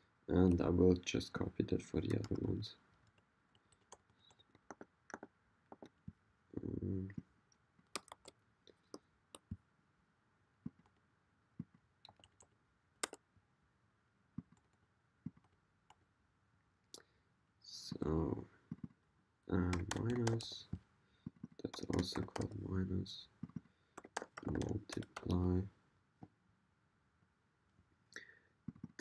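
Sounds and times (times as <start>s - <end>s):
keyboard and mouse clicks: 2.0s - 6.1s, 7.8s - 9.6s, 11.6s - 13.2s, 14.4s - 16.0s, 19.6s - 22.7s, 23.4s - 25.5s.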